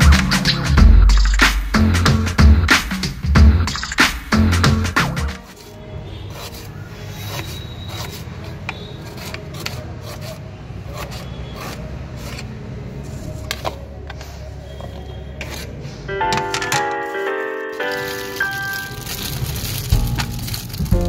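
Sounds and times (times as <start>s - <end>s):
knife cutting on chopping board: 9.1s - 12.5s.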